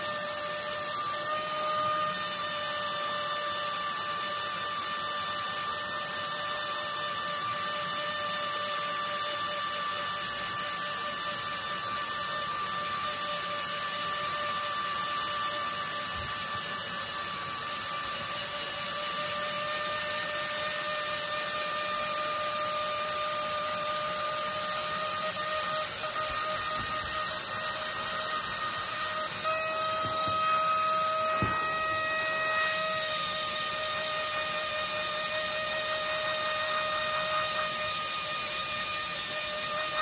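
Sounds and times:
pneumatic air pen buzzing: 0.0 - 40.0.

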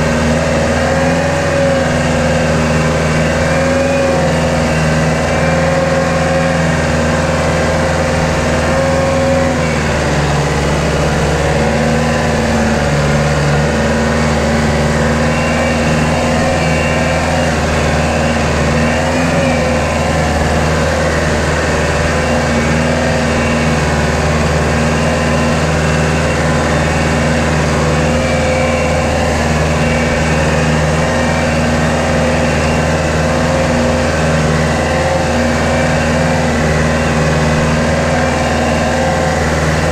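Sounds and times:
tractor diesel engine running: 0.0 - 39.9.

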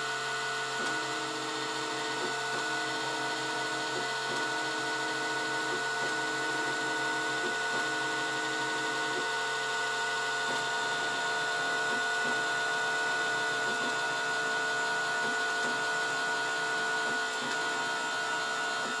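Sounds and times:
stepper motor whine: 0.0 - 19.0.

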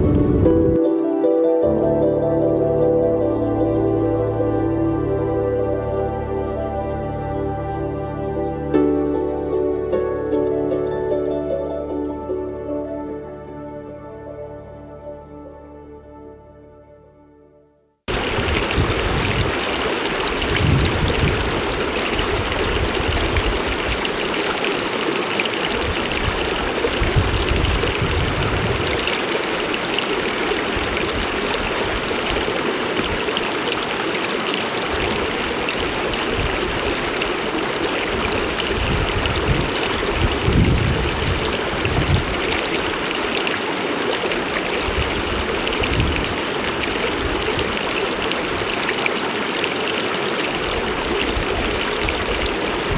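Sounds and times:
stream rushing over stones: 18.1 - 52.9.

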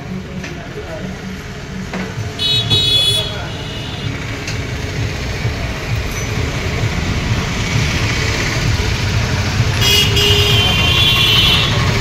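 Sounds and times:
passing motorcycles and vehicles: 0.0 - 12.0
vehicle horn: 2.4 - 4.3, 9.7 - 12.0.

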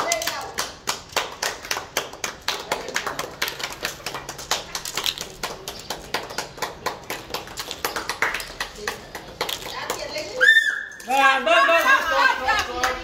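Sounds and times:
dried peas clicking into plastic cups: 0.0 - 1.8, 2.5 - 13.0.

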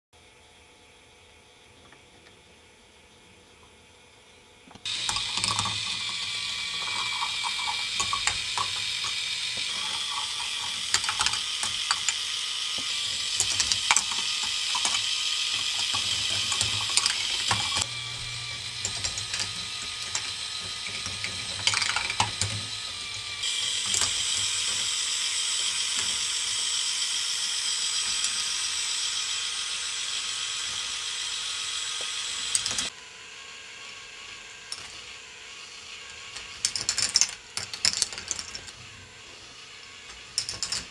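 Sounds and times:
plastic balls rolling and clicking: 4.8 - 26.7, 36.3 - 39.0, 40.1 - 40.9.

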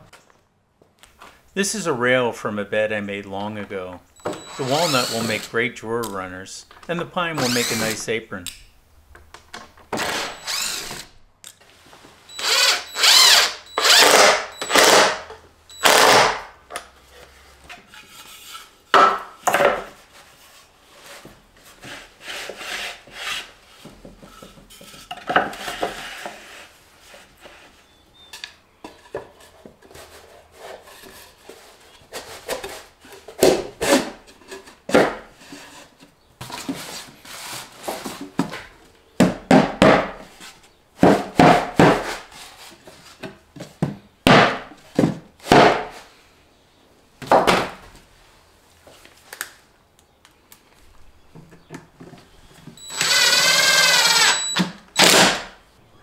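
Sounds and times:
cordless drill driving screws: 4.2 - 5.6, 7.4 - 8.0, 10.0 - 11.2, 12.3 - 16.4, 52.8 - 55.4.

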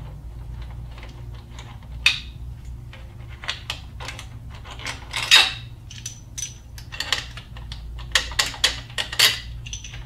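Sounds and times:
metal sockets clinking: 4.0 - 10.0.

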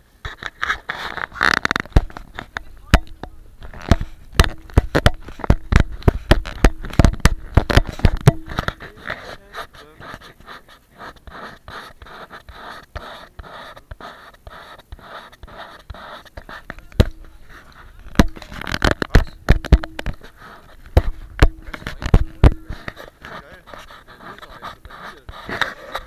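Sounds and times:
fireworks crackling: 0.4 - 10.0.

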